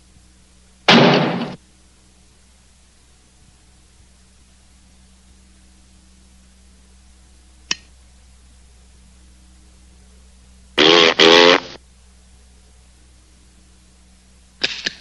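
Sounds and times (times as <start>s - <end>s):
trumpet mouthpiece buzzy honk: 10.8s - 11.8s.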